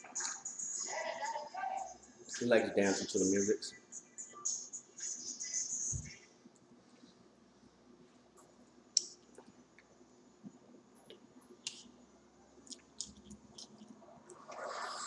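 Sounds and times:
chewing mouth clicks and smacks: 0:09.0 - 0:09.9, 0:12.6 - 0:14.4.

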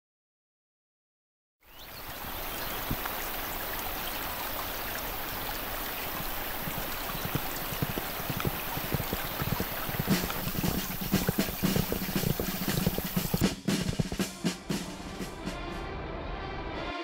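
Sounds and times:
rushing river water: 0:01.7 - 0:14.2
sharp taps: 0:06.7 - 0:14.3.

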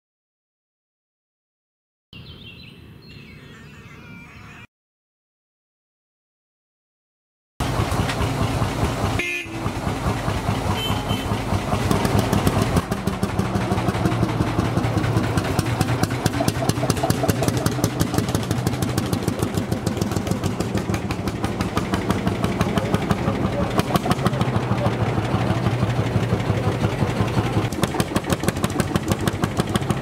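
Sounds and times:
tractor engine running: 0:07.6 - 0:30.0.

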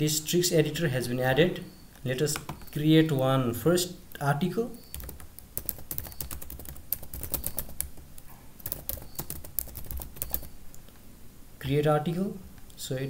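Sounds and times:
computer keyboard typing: 0:02.4 - 0:02.8, 0:04.9 - 0:10.6.

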